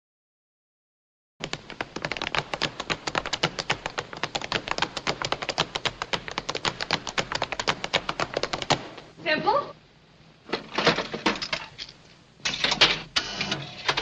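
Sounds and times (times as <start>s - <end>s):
tap shoes on wooden floor: 1.4s - 9.1s.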